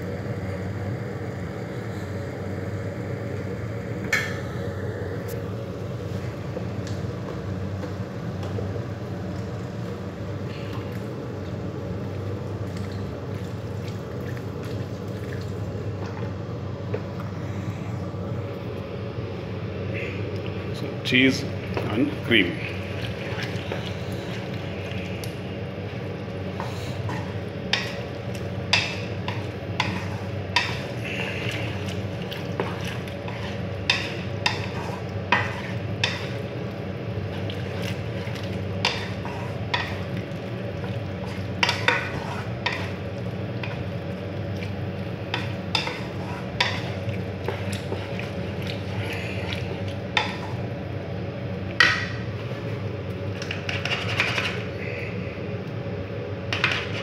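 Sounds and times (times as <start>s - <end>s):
steady low hum: 0.0s - 57.0s
wooden spatula scraping pan: 26.5s - 28.1s, 28.7s - 36.5s, 37.3s - 43.0s, 45.3s - 50.6s, 53.4s - 54.8s, 56.5s - 57.0s.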